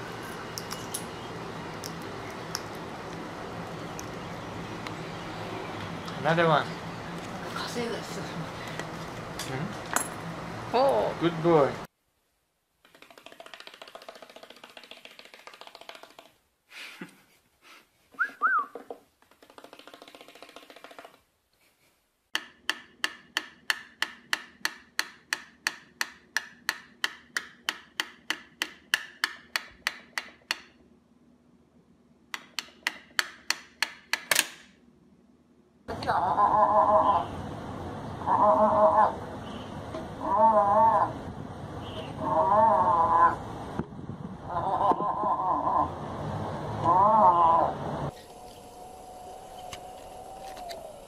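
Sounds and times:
bird pecking toy keyboard clicks: 12.9s - 16.3s.

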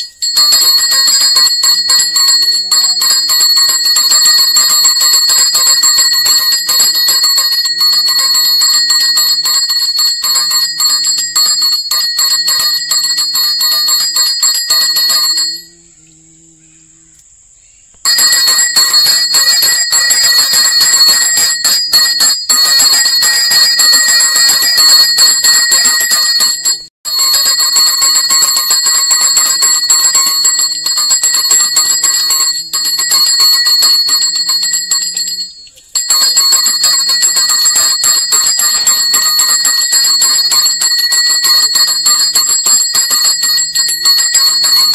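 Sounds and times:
temple bell ringing rapidly: 0.0s - 15.8s, 18.1s - 44.9s.

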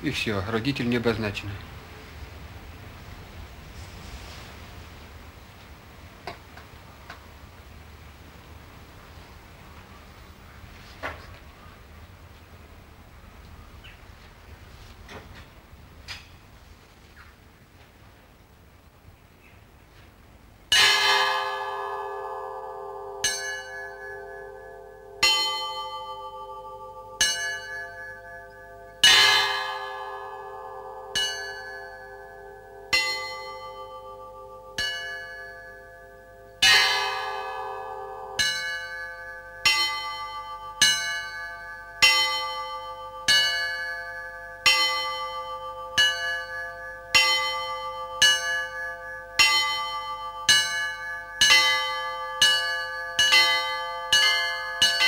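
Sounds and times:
church bells ringing: 20.7s - 55.0s.

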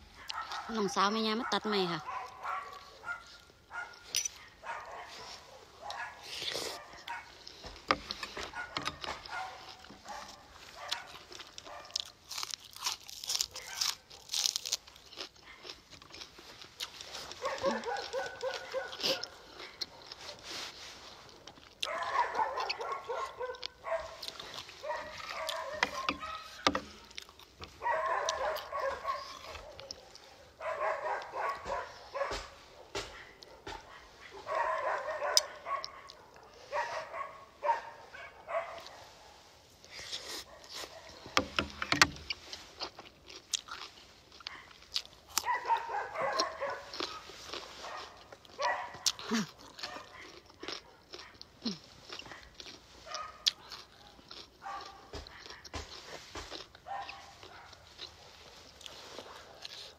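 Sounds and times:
crunchy chewing: 0.0s - 59.9s.

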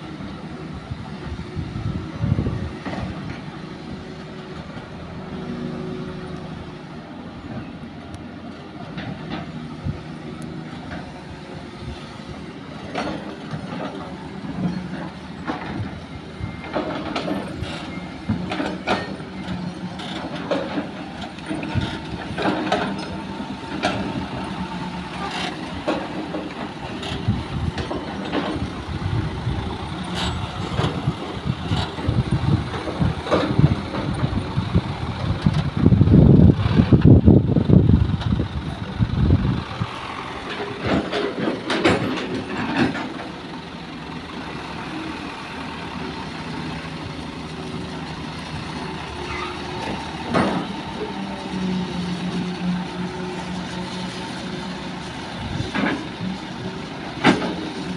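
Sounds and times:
diesel engines running: 0.0s - 57.9s
clunks and knocks: 12.8s - 16.0s, 16.6s - 24.5s, 25.1s - 29.3s, 29.9s - 34.4s, 40.4s - 43.4s, 49.2s - 51.6s, 57.0s - 57.9s.

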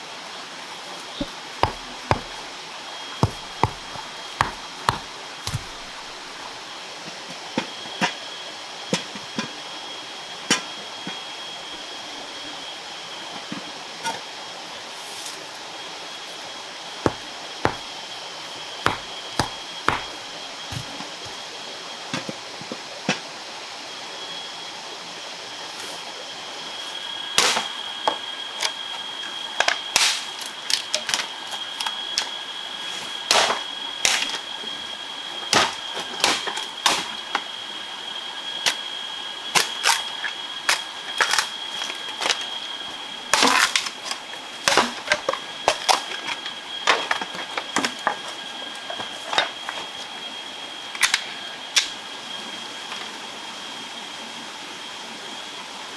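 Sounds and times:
high-pitched insect drone: 0.0s - 22.1s, 23.6s - 55.9s
knife knocking on wood: 1.2s - 2.3s, 3.2s - 5.9s, 18.9s - 20.1s.

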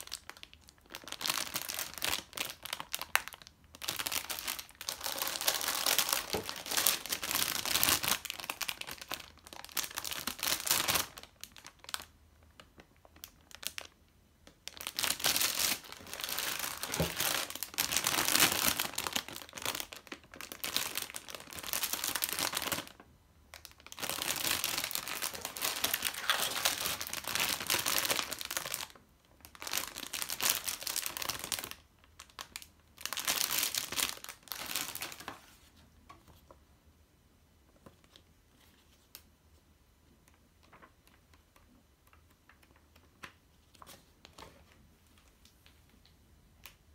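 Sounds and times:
plastic bags crinkling: 0.0s - 35.7s.

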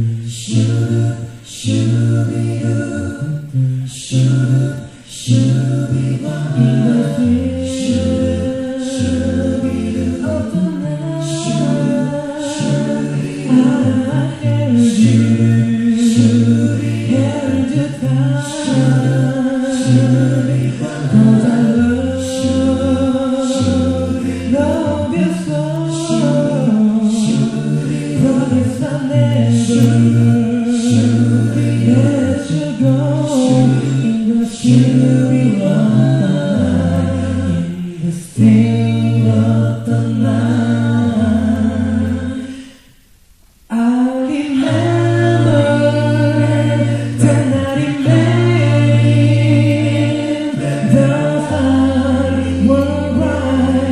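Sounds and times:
male vocal group singing: 0.0s - 43.0s, 43.6s - 53.9s
crisp beat: 0.3s - 42.3s.

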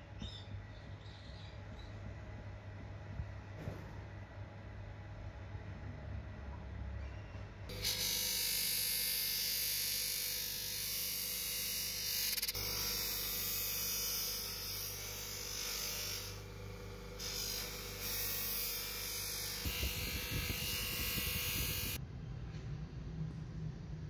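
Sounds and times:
bench grinder humming: 7.7s - 22.0s.

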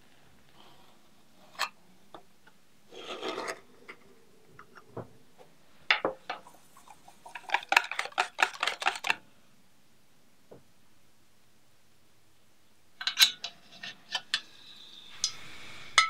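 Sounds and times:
metal spoon scraping can rim: 2.9s - 3.6s, 6.8s - 9.2s.

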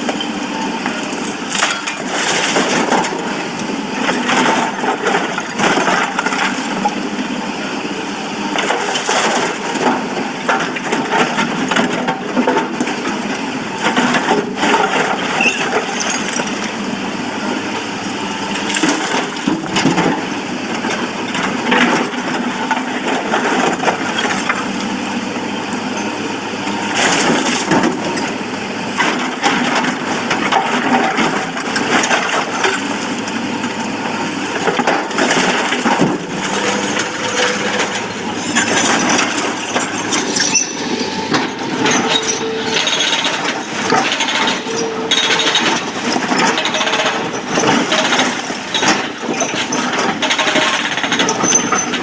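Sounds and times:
diesel engine under load: 0.0s - 52.0s
excavator bucket scraping rock: 1.1s - 6.8s, 34.0s - 52.0s.

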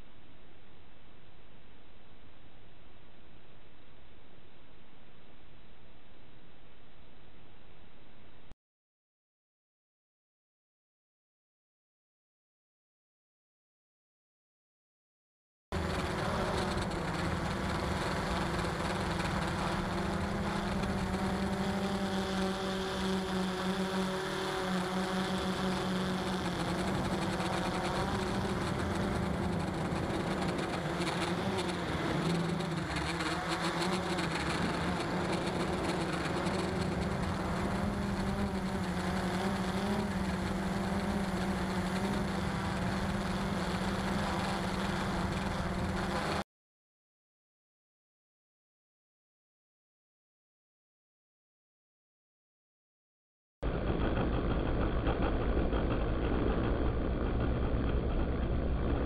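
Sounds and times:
drone propellers humming: 15.8s - 46.4s, 53.6s - 59.0s.

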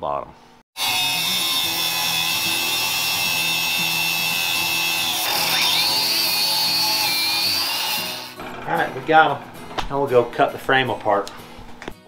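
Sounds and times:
angle grinder cutting steel: 0.8s - 9.6s.

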